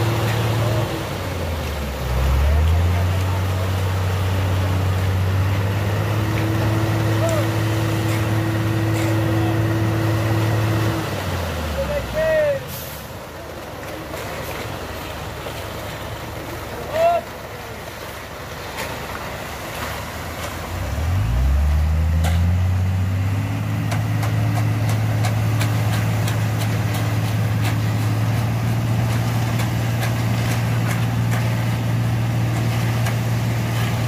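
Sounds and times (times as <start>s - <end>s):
engine running: 0.0s - 34.0s
hoes scraping concrete and gravel: 23.9s - 31.8s.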